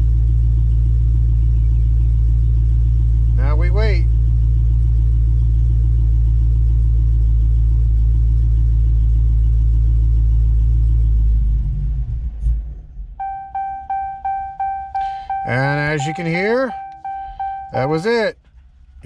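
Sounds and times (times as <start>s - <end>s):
car engine idling and stalling: 0.0s - 19.0s
repeating electronic chime: 13.2s - 18.2s.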